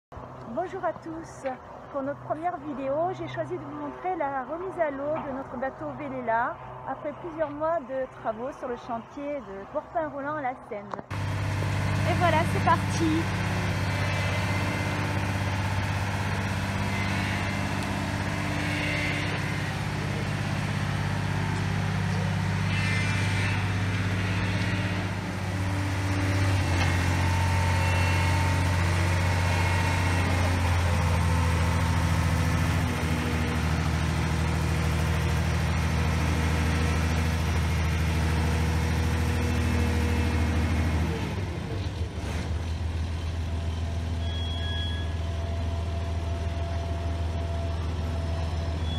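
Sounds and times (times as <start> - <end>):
lift engine running: 11.1 - 48.9.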